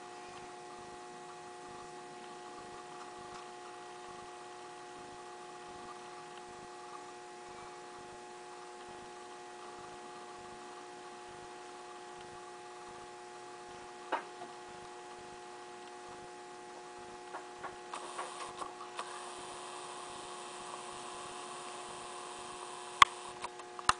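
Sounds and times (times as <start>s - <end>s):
steady electrical hum: 0.0s - 23.9s
sharp clicks: 17.9s - 23.9s.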